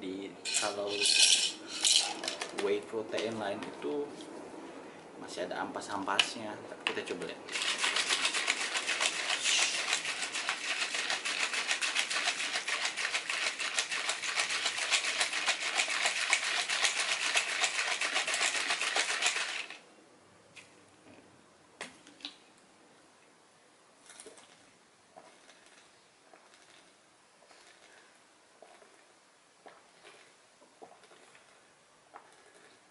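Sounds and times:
shaker bottle sloshing: 7.5s - 19.8s.

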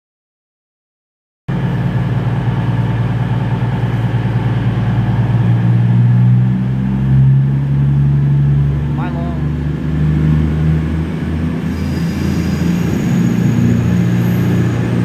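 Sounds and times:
train engines humming: 1.5s - 15.0s.

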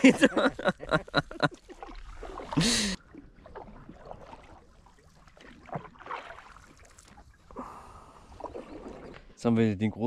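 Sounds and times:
breathy laugh: 0.0s - 1.5s, 2.6s - 3.0s
paddle splashing water: 0.0s - 9.4s.

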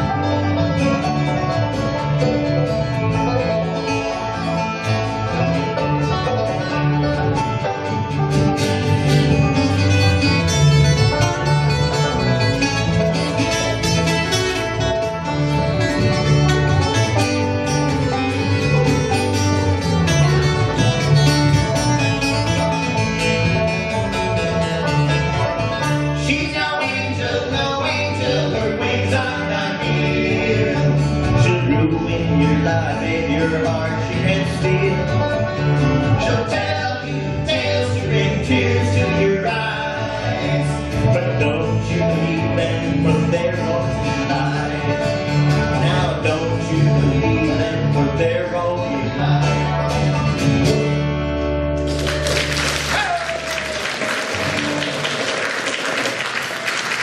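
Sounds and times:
banjo: 0.0s - 53.2s
acoustic guitar: 0.0s - 57.0s
upright bass: 0.0s - 57.0s
voices singing: 26.2s - 35.0s, 36.1s - 45.1s
audience applause: 51.8s - 57.0s.

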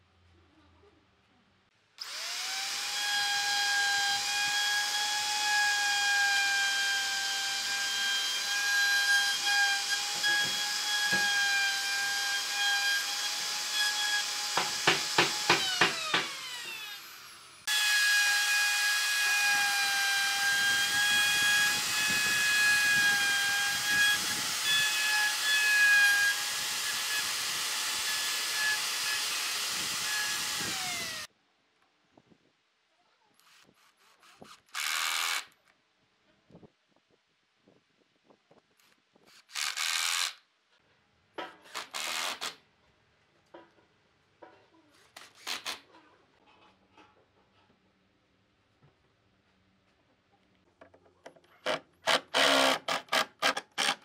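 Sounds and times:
router whining: 2.0s - 31.3s, 51.6s - 54.0s.

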